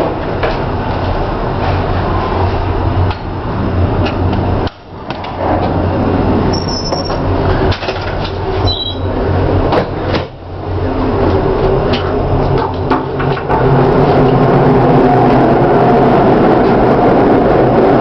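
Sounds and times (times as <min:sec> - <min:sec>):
ship machinery drone: 0:00.0 - 0:18.0
short high squeaks: 0:06.5 - 0:07.2, 0:08.6 - 0:09.1.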